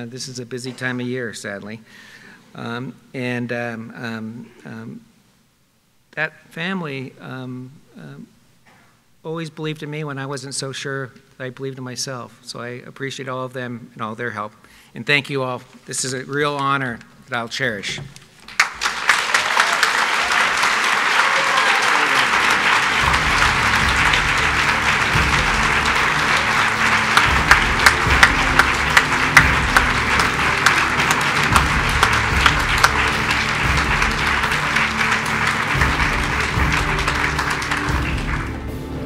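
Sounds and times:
audience applauding: 18.4s - 39.0s
music playing low: 22.1s - 39.0s.

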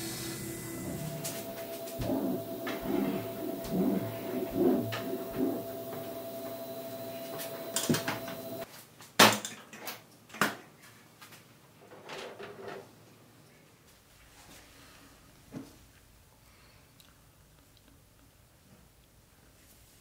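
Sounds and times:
steady hum: 0.0s - 8.6s.

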